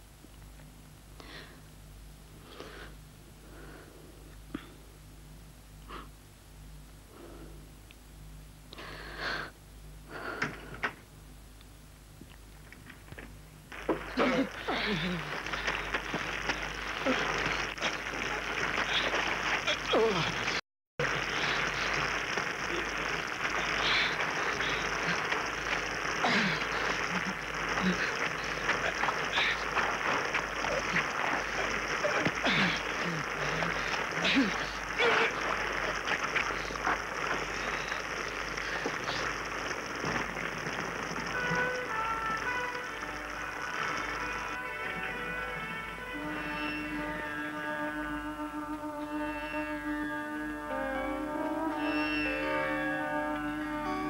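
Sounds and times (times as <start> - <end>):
faint mains hum: 0.0 - 54.0
steady hiss: 0.0 - 54.0
people scuffling: 12.9 - 47.3
woman sighing heavily: 14.2 - 15.3.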